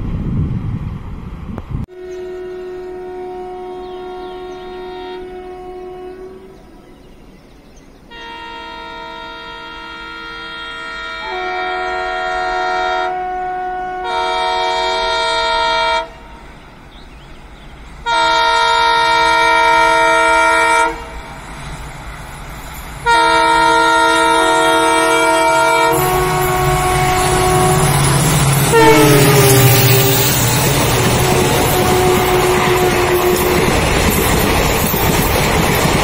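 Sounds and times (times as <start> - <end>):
locomotive air horn: 1.9 - 6.8, 8.1 - 16.4, 18.0 - 21.2, 23.0 - 34.1
train rushing past: 8.1 - 36.0.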